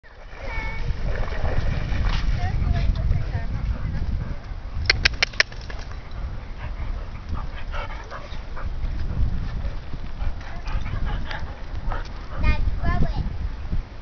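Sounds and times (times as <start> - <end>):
sharp clicks: 4.8 - 5.9.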